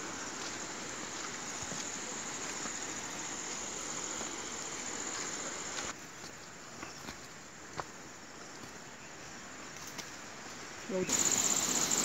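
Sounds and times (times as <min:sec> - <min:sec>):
outdoor hiss: 0:00.0 - 0:06.0, 0:10.2 - 0:12.0
high-pitched insect chorus: 0:00.0 - 0:12.0.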